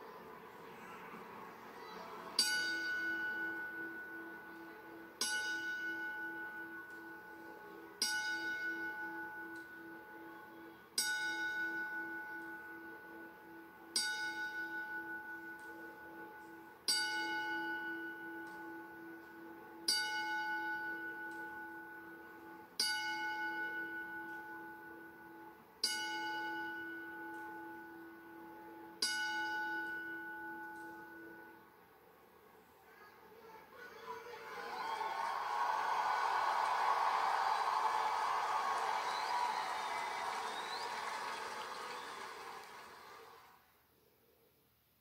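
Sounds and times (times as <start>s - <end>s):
ring bell strikes: 2.4s - 31.6s.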